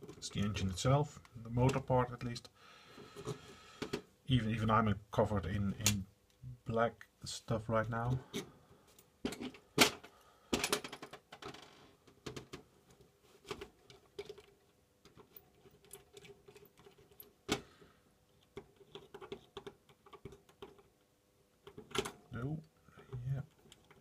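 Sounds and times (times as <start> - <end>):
small parts clicking and tapping: 8.3 - 17.6, 18.3 - 24.0.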